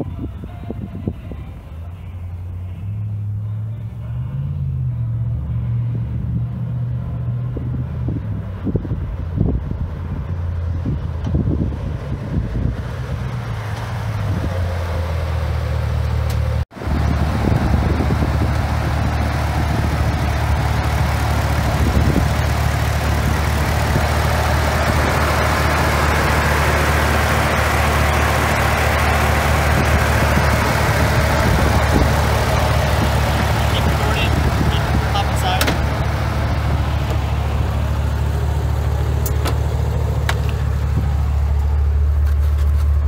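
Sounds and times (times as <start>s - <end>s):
car engine running: 1.6s - 43.0s
car engine idling: 8.8s - 43.0s.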